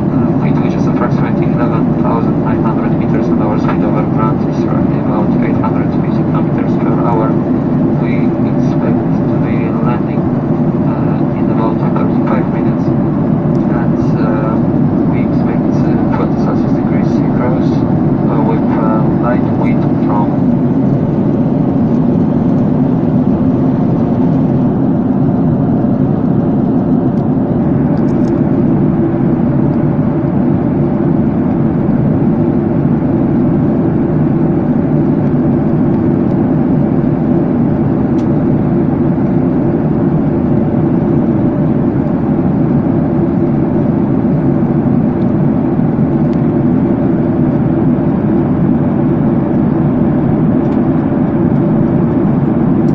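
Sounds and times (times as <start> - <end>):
faint steady hum: 0.0 - 52.9
jet engine cabin rumble: 0.0 - 52.9.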